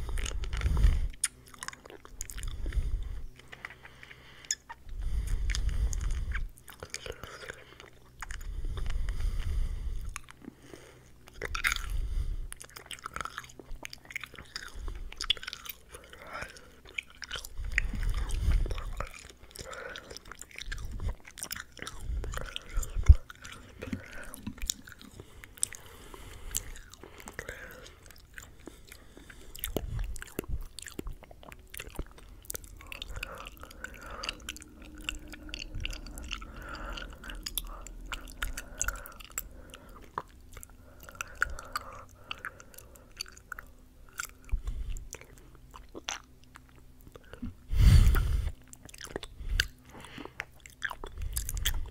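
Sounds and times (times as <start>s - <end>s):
wet mouth clicks and smacks: 0.0s - 4.8s, 26.5s - 47.4s.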